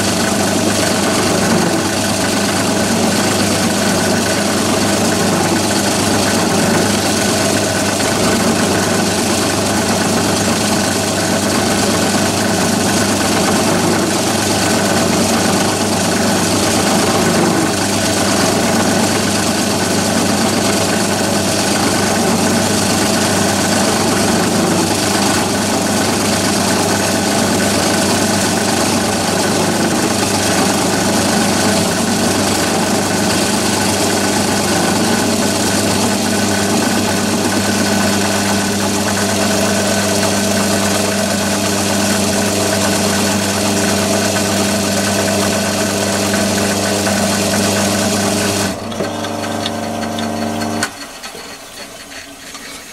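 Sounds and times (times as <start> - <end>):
lathe motor hum: 0.0 - 52.9
milling cutter chatter on metal: 0.0 - 52.9.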